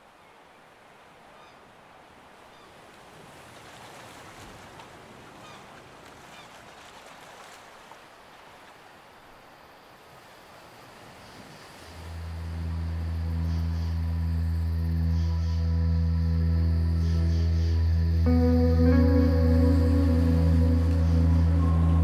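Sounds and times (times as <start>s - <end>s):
waves washing: 2.1s - 14.6s, 17.7s - 22.0s.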